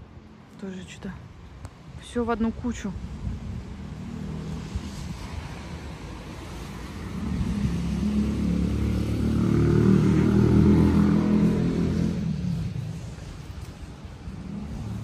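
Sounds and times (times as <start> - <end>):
vehicle engine rumble passing: 3.6 - 15.0.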